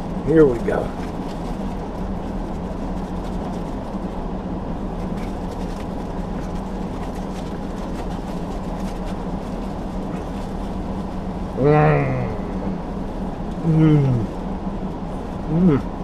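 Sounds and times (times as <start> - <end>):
truck engine idling: 9.6 - 16.0.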